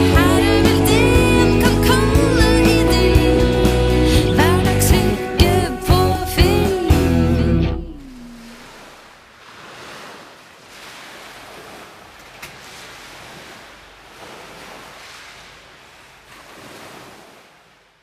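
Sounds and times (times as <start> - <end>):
small waves washing onto shore: 7.8 - 18.0.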